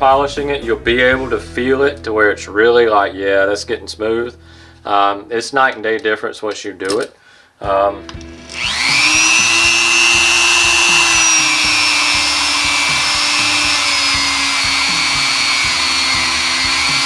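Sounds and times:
rotary tool whining: 0:08.3 - 0:17.0.

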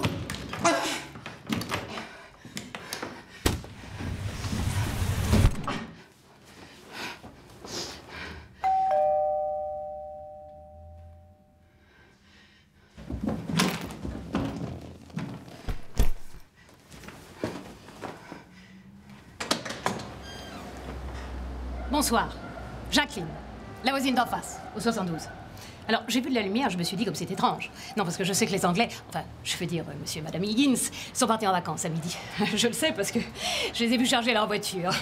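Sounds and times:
two-tone doorbell chime: 0:08.6 - 0:11.6
rustling and knocks: 0:13.0 - 0:18.2.

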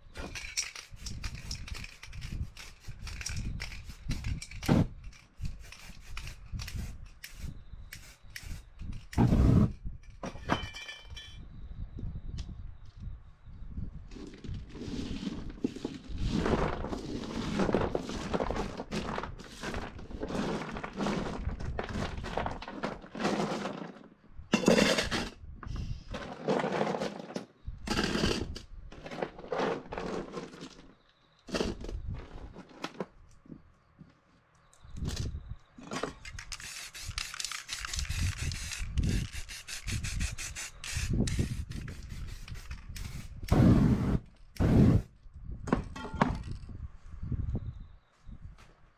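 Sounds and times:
stones rattling into metal can: 0:15.3 - 0:25.4, 0:26.1 - 0:30.9.

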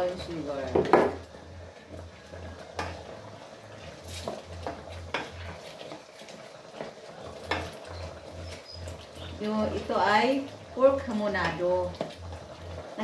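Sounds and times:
spatula scraping and tapping pot: 0:02.6 - 0:03.2, 0:04.1 - 0:09.3.

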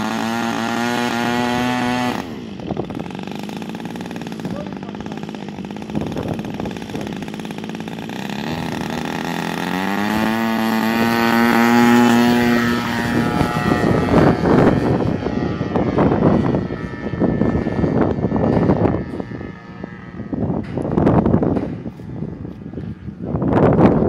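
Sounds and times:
model plane engine revving: 0:00.0 - 0:21.5.

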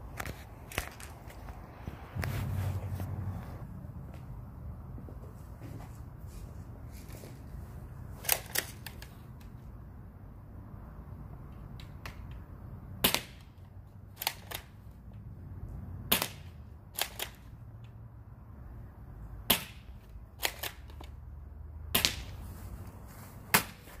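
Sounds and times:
airsoft gun shots: 0:16.1 - 0:17.3.

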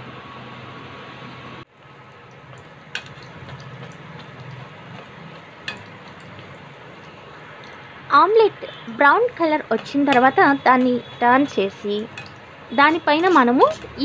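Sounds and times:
egg sizzling in hot oil: 0:01.7 - 0:14.0
skimmer knocking against pan: 0:09.6 - 0:11.2.

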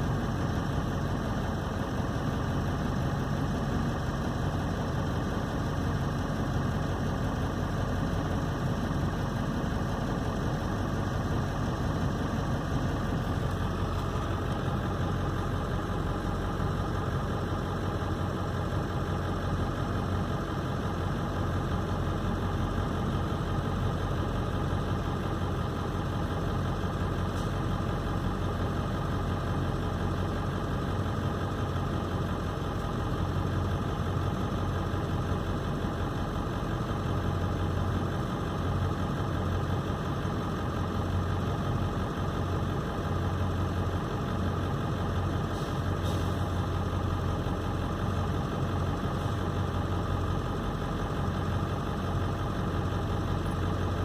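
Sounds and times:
vehicle engine running: 0:00.0 - 0:54.0.

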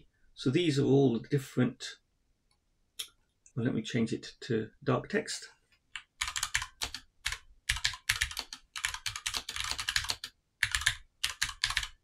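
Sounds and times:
keyboard typing: 0:06.0 - 0:12.0.

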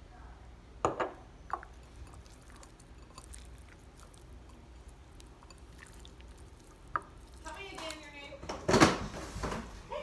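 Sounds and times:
wet squishing of fish in sauce: 0:01.5 - 0:08.0.

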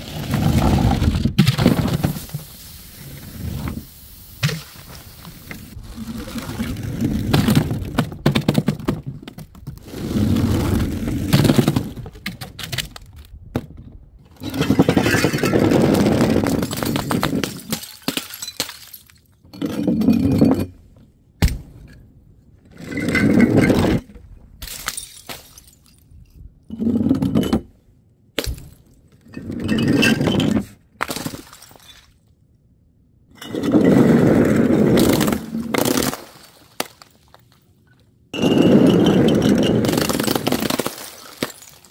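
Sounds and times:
glass shattering: 0:24.6 - 0:26.1, 0:38.4 - 0:41.9.

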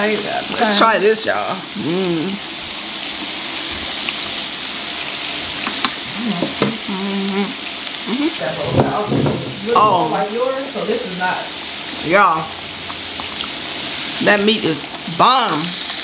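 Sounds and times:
meat sizzling on grill: 0:00.0 - 0:16.0
short vocal sounds: 0:06.0 - 0:08.4.

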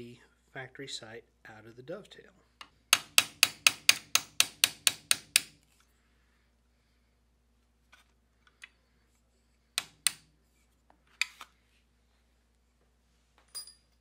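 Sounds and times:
hammer striking metal punch: 0:02.9 - 0:05.6.

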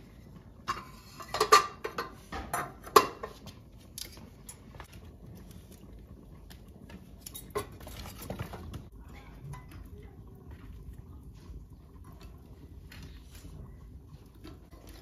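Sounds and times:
metal tongs clinking and scraping: 0:07.2 - 0:08.4.

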